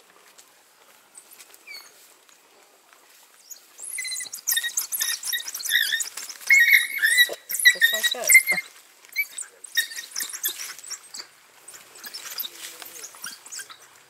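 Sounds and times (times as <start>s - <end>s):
scuffling in grass: 0.0s - 14.0s
wild dogs high-pitched chirping: 1.6s - 2.0s, 3.4s - 14.0s.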